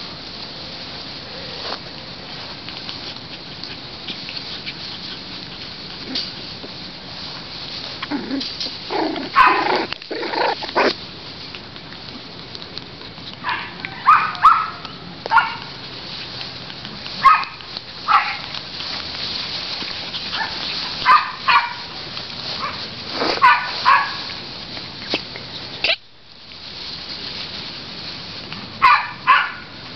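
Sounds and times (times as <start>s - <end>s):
puppies yipping and barking: 2.5s - 6.8s, 8.0s - 26.0s, 28.7s - 29.9s.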